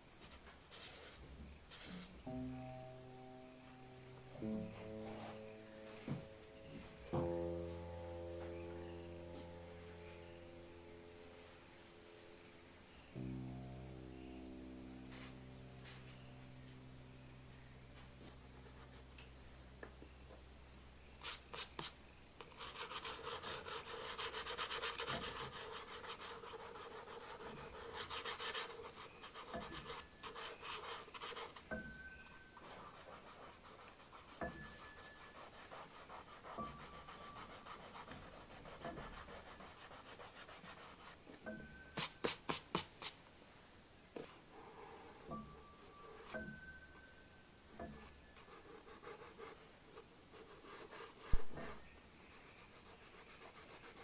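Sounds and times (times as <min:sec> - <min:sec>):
tissue rubbing pastel on paper: 0:00.7 - 0:02.1, 0:15.1 - 0:16.3, 0:21.2 - 0:31.6, 0:32.6 - 0:41.2, 0:52.3 - 0:54.0
scratchy strokes on paper: 0:00.7 - 0:02.2, 0:15.0 - 0:16.4, 0:18.0 - 0:19.1, 0:21.2 - 0:31.7, 0:32.6 - 0:41.3, 0:48.0 - 0:54.0.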